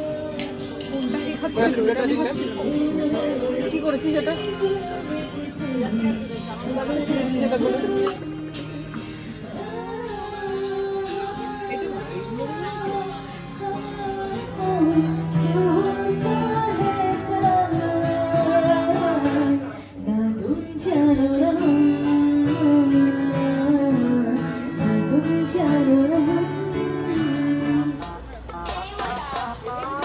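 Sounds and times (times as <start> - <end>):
acoustic guitar strumming: 0.0 - 30.0
woman singing: 0.0 - 30.0.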